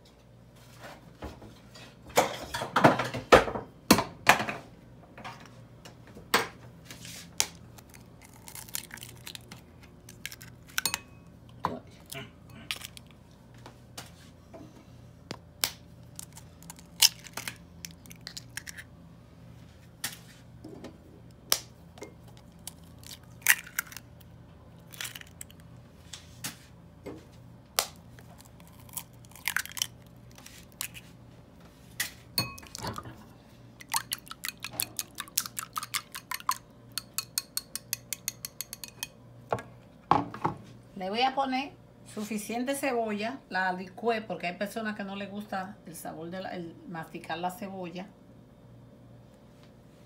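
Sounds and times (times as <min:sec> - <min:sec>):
eggs cracked into glass bowl: 0:22.3 - 0:24.0, 0:32.4 - 0:33.0, 0:33.8 - 0:39.1
whisk beating eggs in glass bowl: 0:33.9 - 0:39.1.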